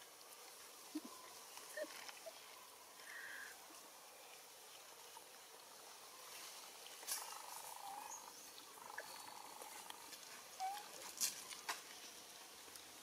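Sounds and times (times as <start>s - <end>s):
soft squeaky animal calls: 10.6s - 11.0s.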